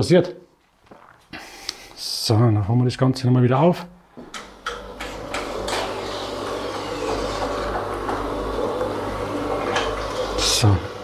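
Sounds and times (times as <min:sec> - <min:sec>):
electric motor hum: 0:04.4 - 0:11.0.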